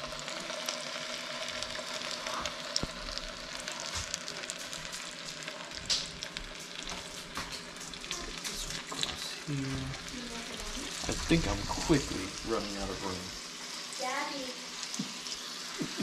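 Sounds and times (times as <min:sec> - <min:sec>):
fish sizzling in a frying pan: 0:00.0 - 0:16.0.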